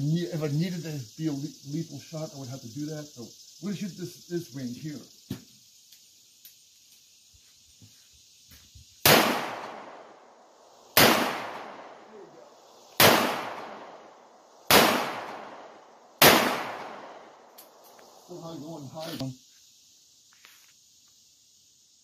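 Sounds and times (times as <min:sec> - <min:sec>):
revolver shots echoing: 0:13.0 - 0:13.8, 0:16.2 - 0:17.1.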